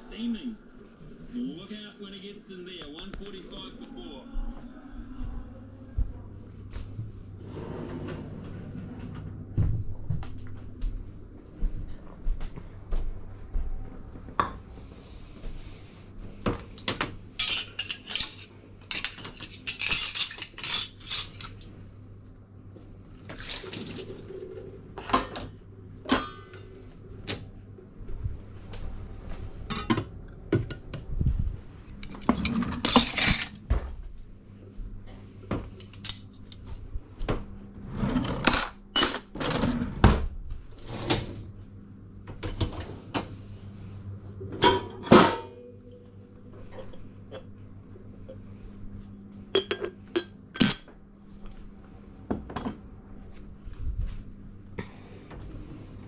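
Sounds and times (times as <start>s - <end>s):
cutlery and dishes clattering: 17.4s - 21.6s, 32.0s - 33.6s.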